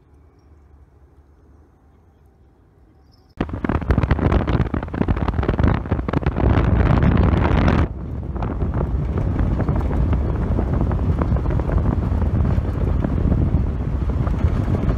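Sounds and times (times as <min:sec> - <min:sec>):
vehicle low rumble: 0:00.0 - 0:14.9
wind buffeting microphone: 0:03.4 - 0:14.9.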